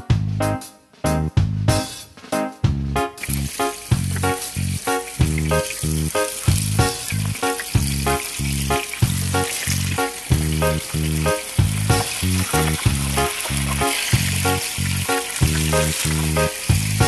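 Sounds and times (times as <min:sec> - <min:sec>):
background music with beat: 0:00.0 - 0:17.0
oil sizzling in a pan: 0:03.2 - 0:17.0.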